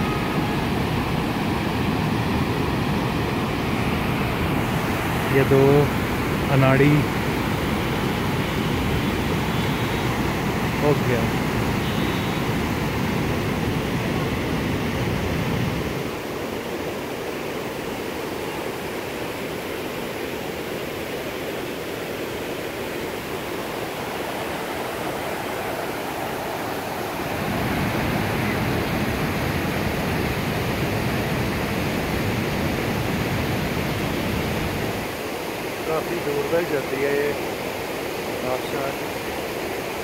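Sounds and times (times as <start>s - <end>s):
stream rushing over boulders: 0.0s - 40.0s.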